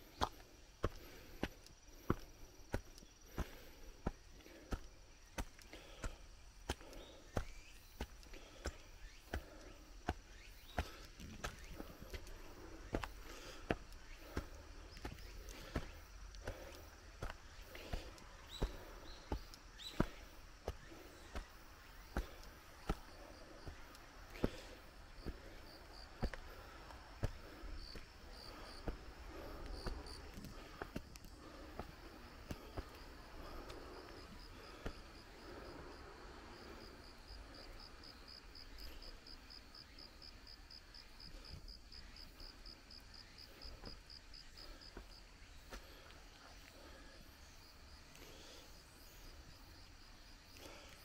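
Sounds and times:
footsteps on stone steps: 0.0 - 35.8, 43.4 - 47.1, 50.6 - 51.0
insect chirps: 0.0 - 51.0.

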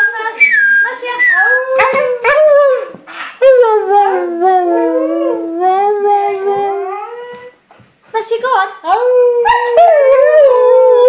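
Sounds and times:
dog howling: 3.5 - 7.6.

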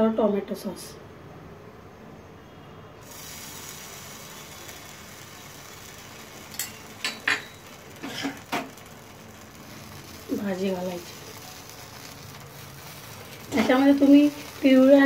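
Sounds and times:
faint sizzle on a pan: 3.0 - 15.0
kitchen utensils clinking: 6.4 - 8.8.

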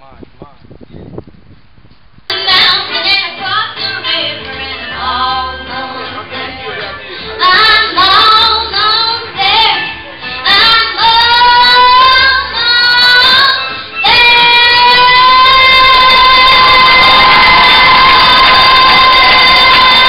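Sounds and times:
girl singing into microphone: 2.3 - 6.0, 7.4 - 17.3.

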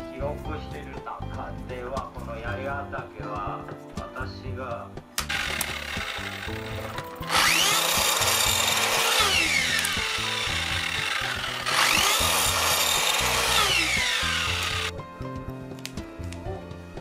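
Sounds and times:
soft background music: 0.0 - 17.0
miter saw whining through wood: 5.2 - 14.9.

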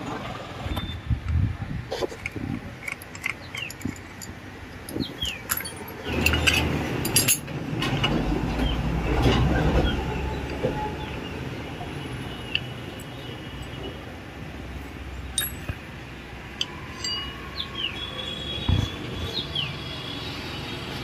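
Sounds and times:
small metal clinks and taps: 15.3 - 15.8.

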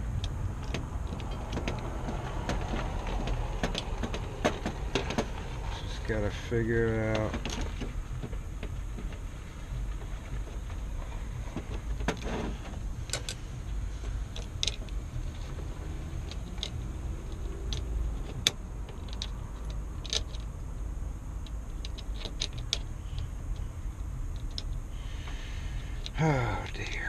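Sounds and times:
steady low rumble: 0.0 - 27.0
small metallic clicks and taps: 14.0 - 15.0, 16.2 - 20.5, 21.4 - 25.4.

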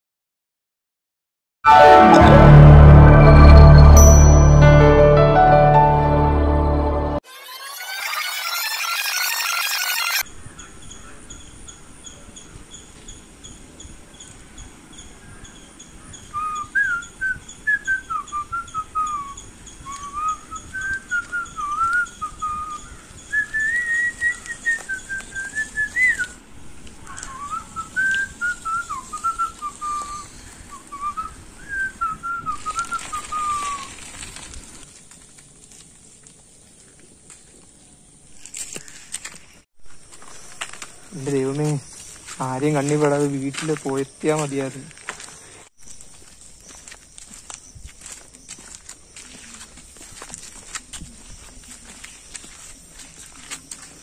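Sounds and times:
faint outdoor hiss: 10.3 - 54.0.

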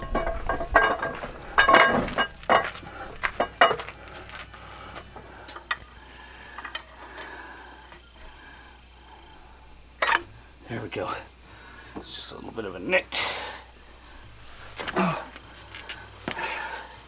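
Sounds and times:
metal clinking and knocking: 0.0 - 3.9.

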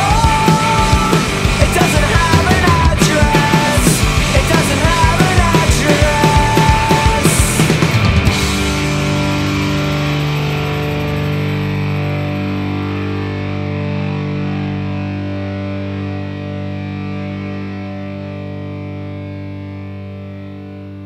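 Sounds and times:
band playing: 0.0 - 15.1
distorted electric guitar chord: 0.0 - 21.0.

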